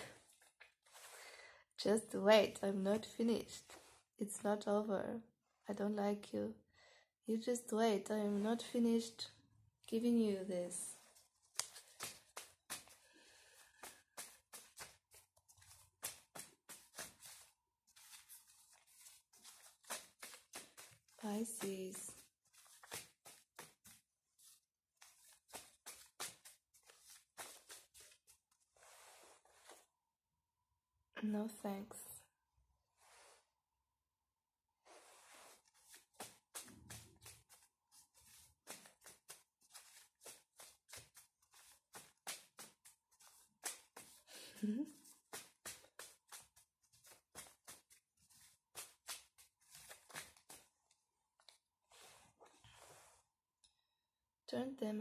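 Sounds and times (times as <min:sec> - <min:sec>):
cards being shuffled: 0:11.0 - 0:29.8, 0:35.0 - 0:50.7.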